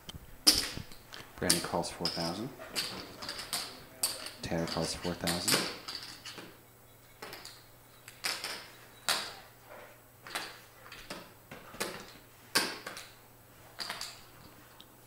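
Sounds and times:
clay poker chips clacking: 0:00.4 - 0:06.6, 0:07.2 - 0:09.4, 0:13.8 - 0:14.3.

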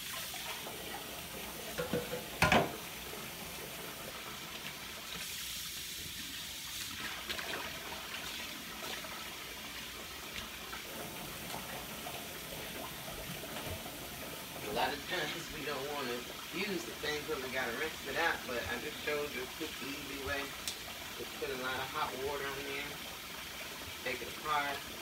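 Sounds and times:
plastic parts being rinsed: 0:00.0 - 0:23.0
tap running into steel sink: 0:01.8 - 0:02.8.

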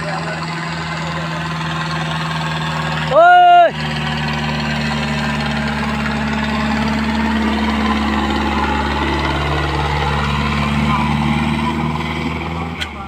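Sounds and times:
tractor diesel engine under load: 0:00.0 - 0:13.0.

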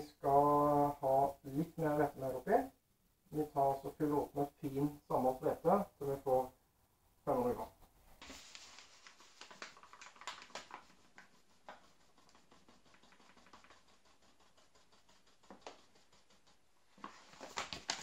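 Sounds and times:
flour sprinkling into a bowl: 0:08.2 - 0:18.0.

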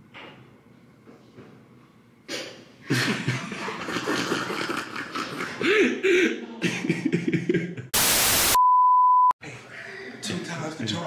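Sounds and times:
burst of static hiss: 0:08.0 - 0:08.6.

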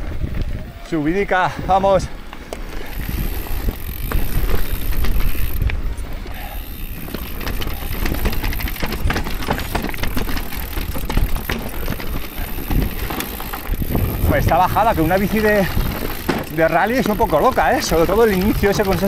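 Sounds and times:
bike rattling: 0:00.0 - 0:19.0
tyres crunching over stones: 0:02.2 - 0:19.0
steady low rumble: 0:10.7 - 0:16.1.

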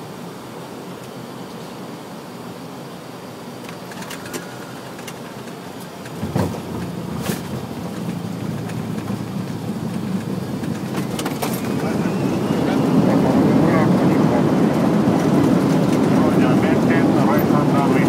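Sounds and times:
rush of air and rumble: 0:03.8 - 0:18.0.

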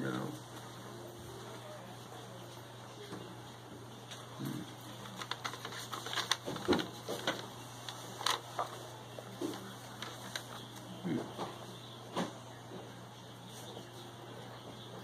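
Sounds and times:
paper crackling and rustling: 0:04.0 - 0:11.0.

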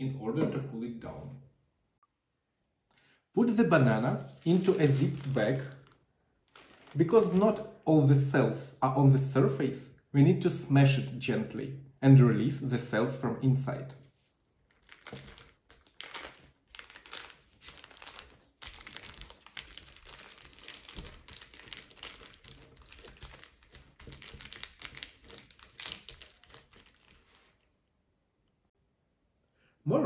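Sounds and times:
plastic bag crinkling: 0:04.0 - 0:07.8, 0:14.3 - 0:27.7.

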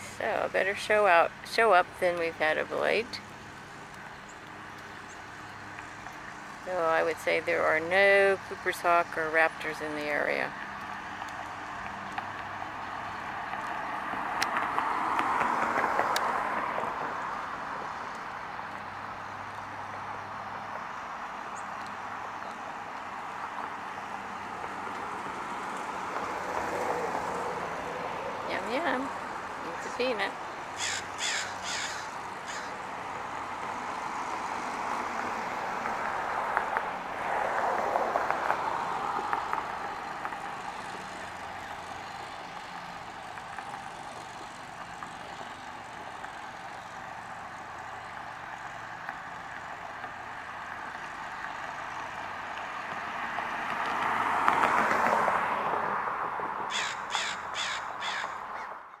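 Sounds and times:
rushing background noise: 0:00.0 - 0:52.8
crow cawing: 0:30.8 - 0:32.8, 0:56.7 - 0:59.0.

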